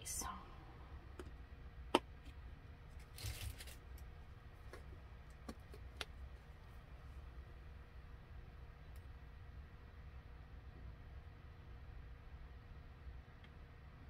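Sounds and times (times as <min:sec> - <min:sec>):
soft rustle: 0:02.9 - 0:04.0.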